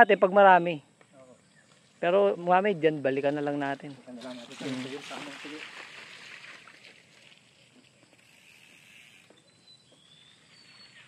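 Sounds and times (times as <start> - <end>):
high bird whistles: 9.4 - 11.0.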